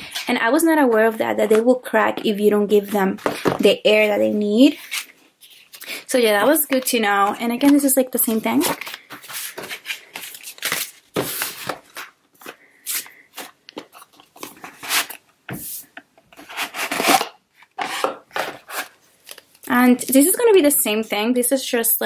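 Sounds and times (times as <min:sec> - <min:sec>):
cardboard boxes rustling and scraping: 0:08.5 - 0:19.0.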